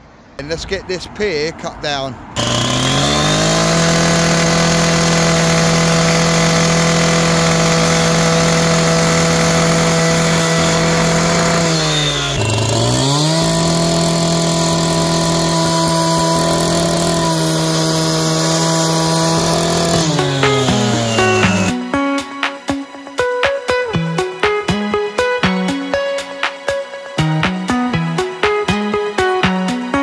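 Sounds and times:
cut-off saw cutting brick: 2.4 - 21.8.

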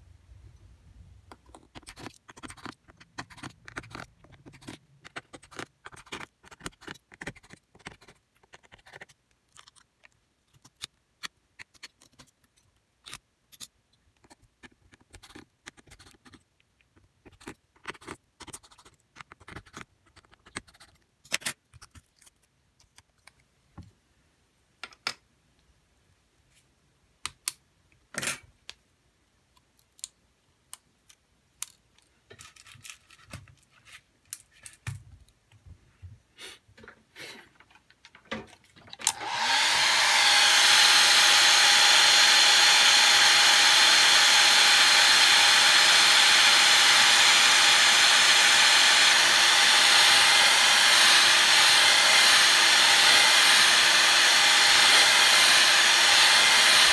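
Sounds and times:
hands handling phone parts: 8.4 - 24.0, 29.5 - 35.8.

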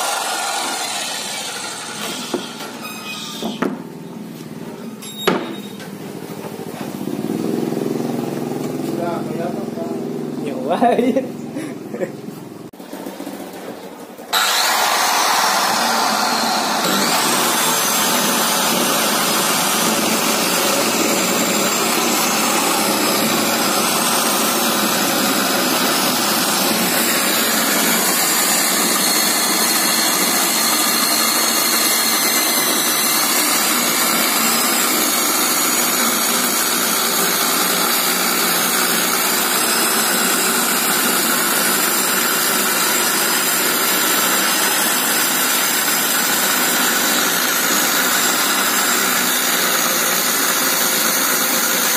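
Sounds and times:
circular saw cutting wood: 0.0 - 3.7, 14.3 - 51.9.

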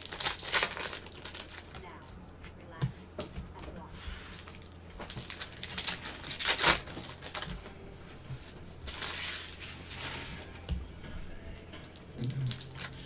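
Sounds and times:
card pack wrappers crinkling: 0.0 - 2.1, 4.3 - 7.6, 8.9 - 10.5, 11.8 - 13.0.

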